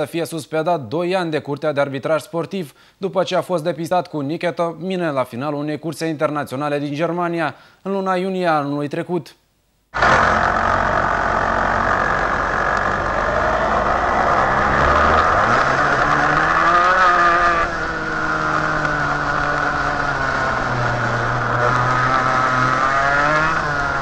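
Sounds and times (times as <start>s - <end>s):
kart engine revving: 10.0s - 24.0s.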